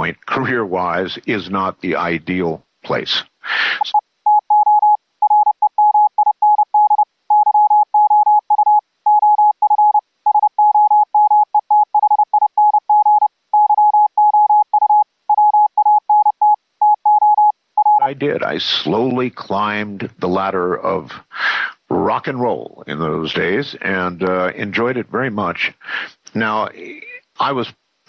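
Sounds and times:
morse code tone: 3.8 - 18.1.

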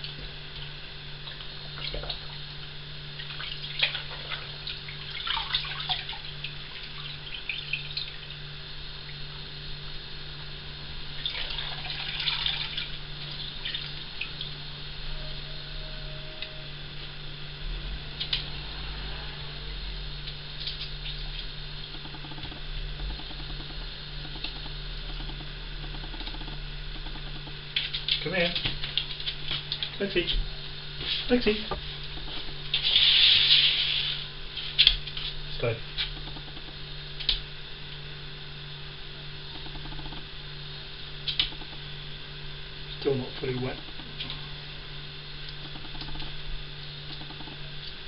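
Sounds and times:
steady low hum: 0.0 - 48.0
water dripping and trickling: 3.2 - 8.4, 11.2 - 14.6
fast rhythmic ticking: 21.9 - 28.2, 45.5 - 46.3
small sharp ticks: 21.9 - 28.2.

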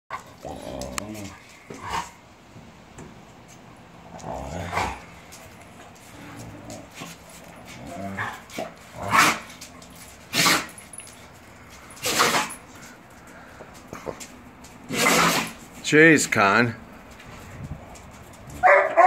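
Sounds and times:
dogs growling: 0.1 - 2.2, 4.0 - 14.2, 14.8 - 15.6
dogs barking: 18.5 - 19.0.

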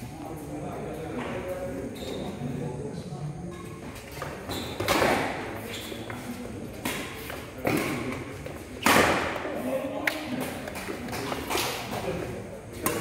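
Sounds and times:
rackets hitting shuttlecock: 4.2 - 13.0.

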